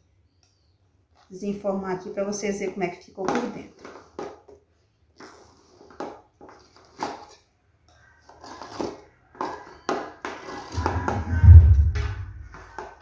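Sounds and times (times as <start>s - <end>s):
deep rumble of pan handled: 10.8s - 12.6s.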